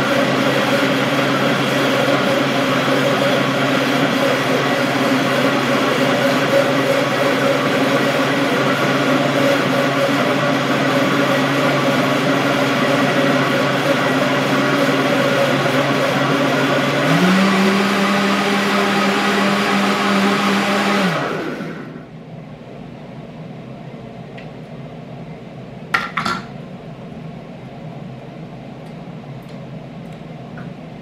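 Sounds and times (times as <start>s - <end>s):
blender motor running: 0.0s - 22.1s.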